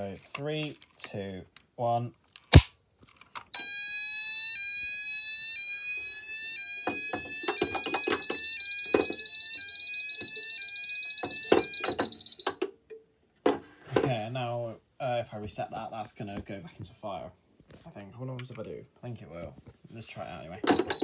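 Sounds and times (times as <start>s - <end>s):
fire alarm sweep tone: 3.6s - 12.6s, 20.7s - 21.0s
steady high alarm tone: 3.6s - 12.7s, 20.6s - 21.0s.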